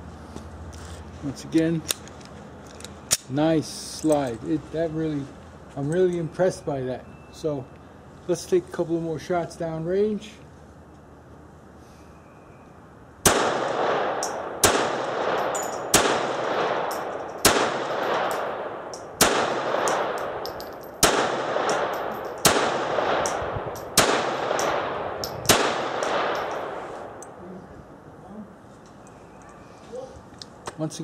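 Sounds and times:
pistol shots echoing: 0:13.2 - 0:27.4.

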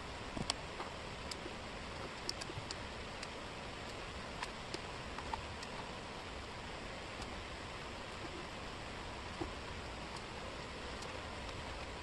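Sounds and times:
steady hiss: 0:00.0 - 0:12.0.

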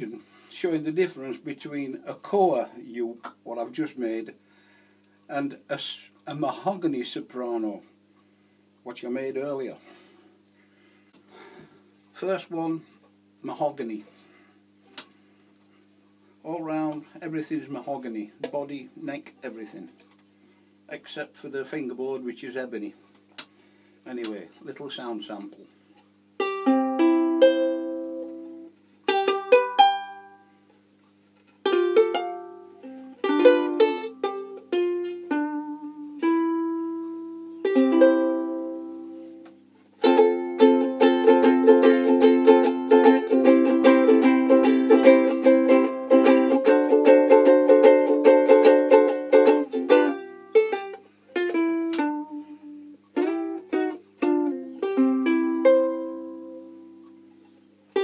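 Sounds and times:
ukulele strumming: 0:26.4 - 0:30.5, 0:31.6 - 0:57.2.

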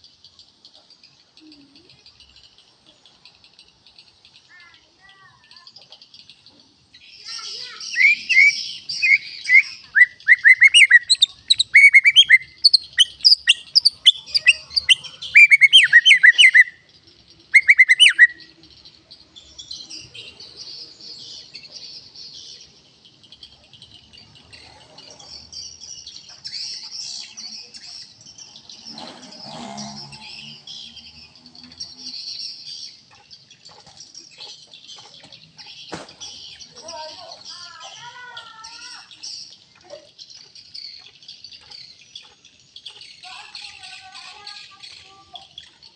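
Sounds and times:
bird chirping and whistling: 0:07.3 - 0:16.9, 0:17.5 - 0:18.6.

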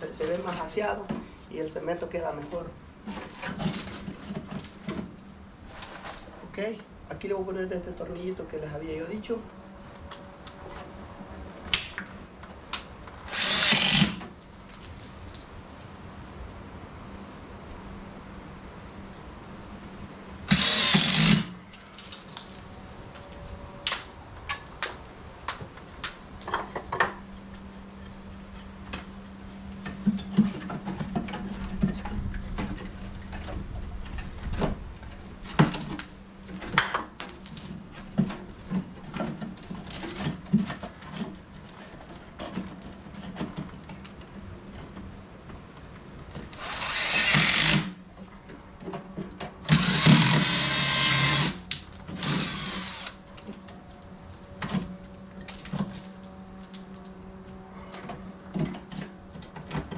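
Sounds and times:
cordless drill driving screws: 0:13.3 - 0:14.2, 0:20.5 - 0:21.5, 0:46.6 - 0:48.0, 0:49.7 - 0:53.2.

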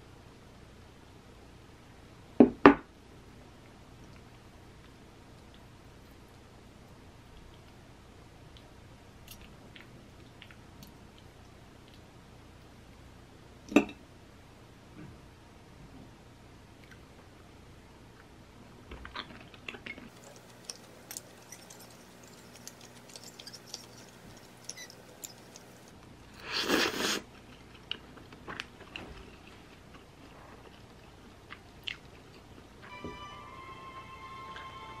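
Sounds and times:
quiet chewing: 0:03.6 - 0:07.8, 0:19.0 - 0:32.7.

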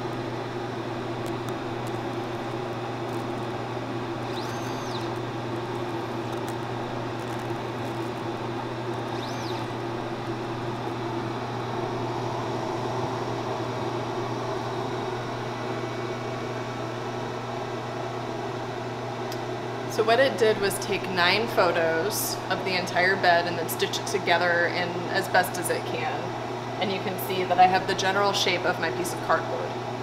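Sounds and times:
laser cutter and fan humming: 0:00.0 - 0:30.0
brief high whines: 0:04.3 - 0:05.2, 0:09.1 - 0:09.8.

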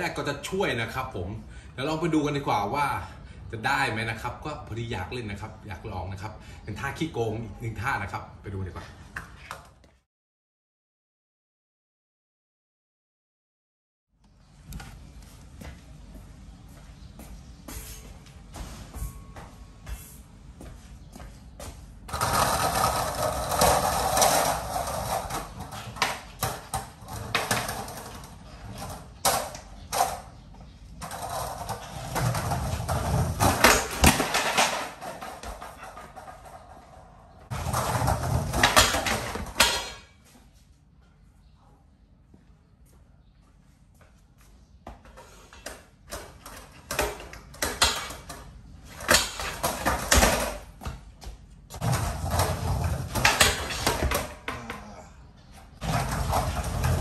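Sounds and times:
skateboard wheels rolling on tiles: 0:20.8 - 0:40.0, 0:44.9 - 0:57.0
skateboard clacking: 0:31.0 - 0:39.9, 0:49.0 - 0:50.7, 0:51.8 - 0:54.6.

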